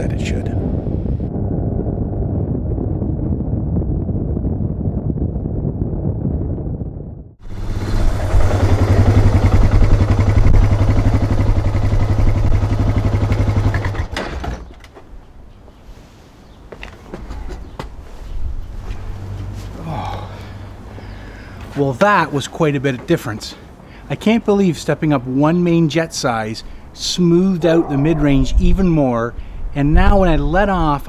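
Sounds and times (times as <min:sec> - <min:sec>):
muffled engine and wind: 0:00.0 - 0:13.2
motorcycle engine running: 0:07.4 - 0:14.1.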